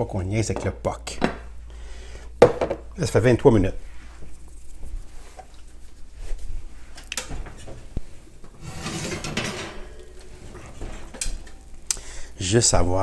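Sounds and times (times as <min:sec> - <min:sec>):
oven door opening: 0:07.2 - 0:12.1
baking dish scraping: 0:08.2 - 0:12.3.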